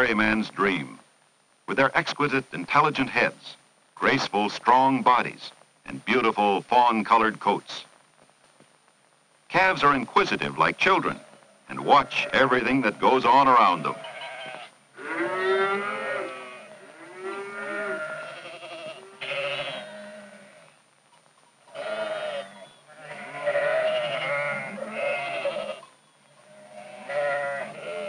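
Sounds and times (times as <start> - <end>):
farm animals bleating: 10.8 - 20.8, 21.7 - 28.0.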